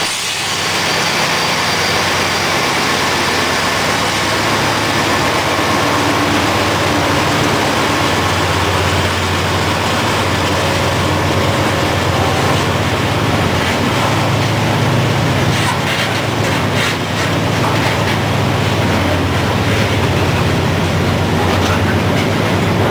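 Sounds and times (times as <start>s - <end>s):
steel wheels rumbling on rail: 0.0s - 22.9s.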